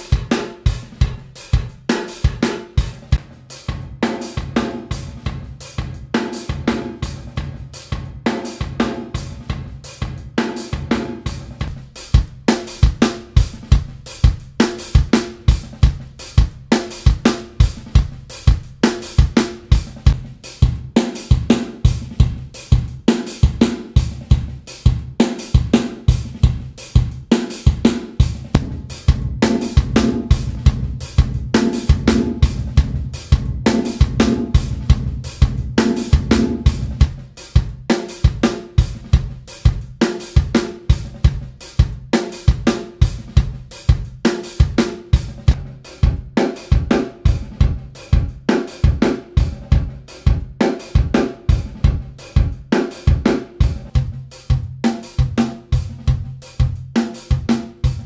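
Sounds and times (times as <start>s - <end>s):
drum kit loop with reverb: 0.0s - 58.0s.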